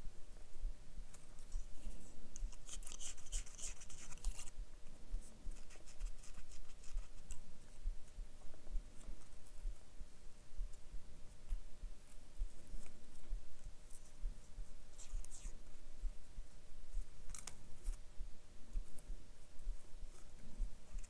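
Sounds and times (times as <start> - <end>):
paper strip scraping: 2.4 - 4.5, 17.3 - 18.0.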